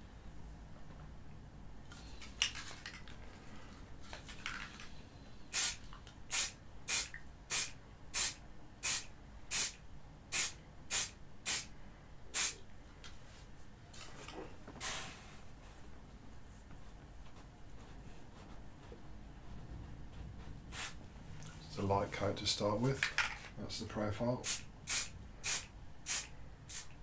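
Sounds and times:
aerosol spray can hissing: 5.5 - 11.7, 12.4 - 12.6, 24.4 - 27.0.

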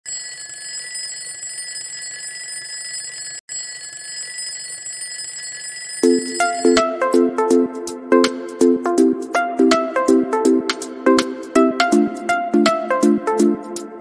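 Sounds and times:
electronic beeping notes: 6.0 - 7.0.

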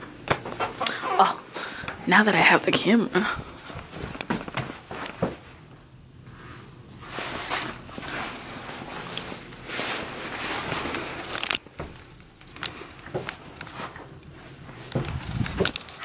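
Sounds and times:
shuffling and rustling: 3.2 - 16.0.

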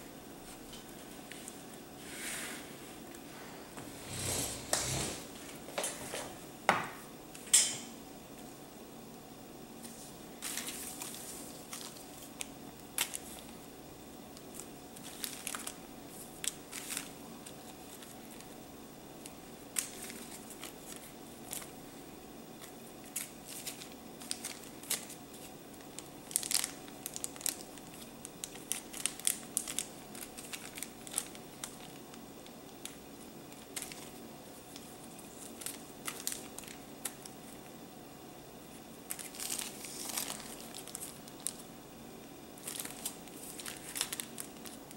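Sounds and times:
steady low hum: 0.0 - 44.9
plastic bags crinkling: 10.4 - 13.6, 14.4 - 18.6, 19.2 - 21.8, 22.6 - 37.6, 39.1 - 41.7, 42.6 - 44.9.

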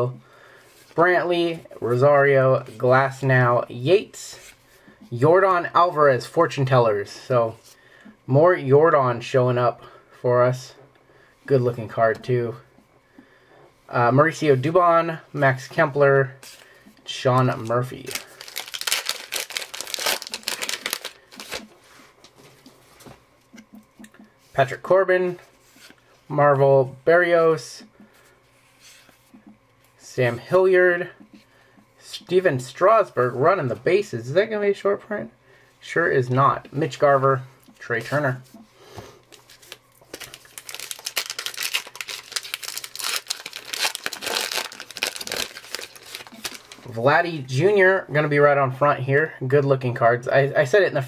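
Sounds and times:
wrapper torn open and crinkled: 18.0 - 21.7, 40.1 - 46.8.

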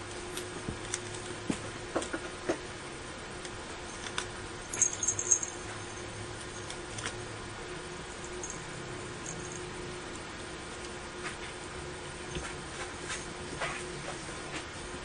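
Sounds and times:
kitten crunching cabbage: 5.6 - 7.2.

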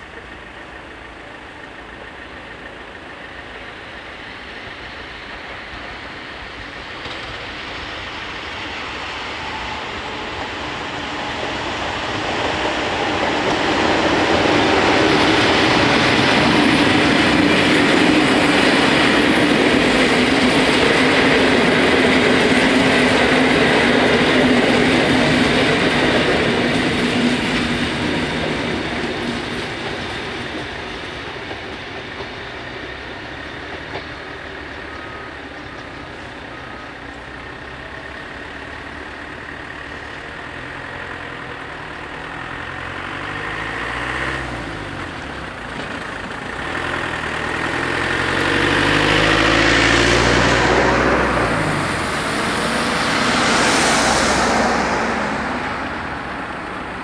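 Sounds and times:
road vehicles crossing rails: 0.0 - 57.0
train coaches rolling: 0.0 - 57.0
van engine passing: 37.3 - 57.0.

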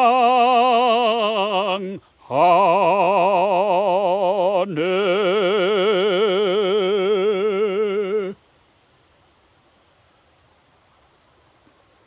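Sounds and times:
person singing a hymn: 0.0 - 8.4.

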